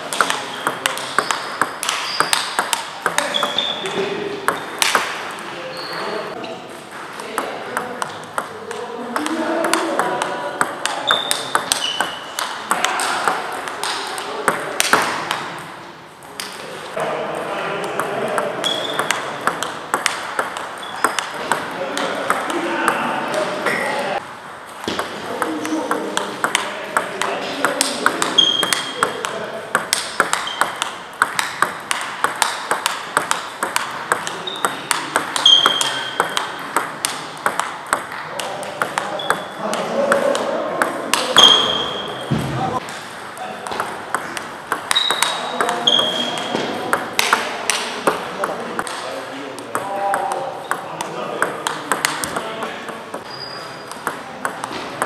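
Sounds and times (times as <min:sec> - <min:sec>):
table tennis balls clicking: 0:00.0 - 0:05.4, 0:06.9 - 0:16.6, 0:17.8 - 0:55.0
short high squeaks: 0:00.6 - 0:02.4, 0:44.9 - 0:46.4.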